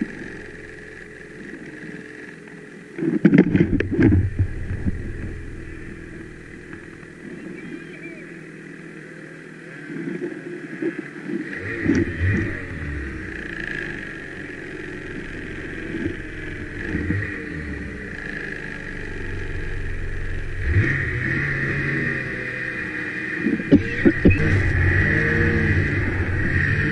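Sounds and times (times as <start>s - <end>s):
snowmobile engines revving: 3.6s - 9.9s, 11.4s - 26.9s.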